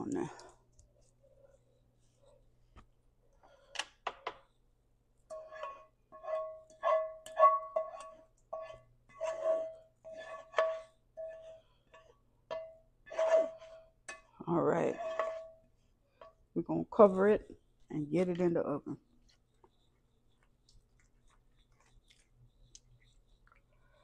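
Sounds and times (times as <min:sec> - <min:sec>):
spoon scraping a metal pan: 0:05.3 - 0:16.4.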